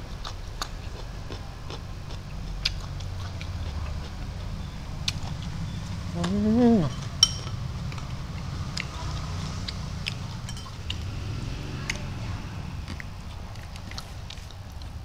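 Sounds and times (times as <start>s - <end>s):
eating clicks and smacks: 0.0s - 5.6s, 7.9s - 11.1s, 12.8s - 15.0s
metal spoon clinking glass bowl: 6.9s - 7.7s, 10.4s - 10.9s.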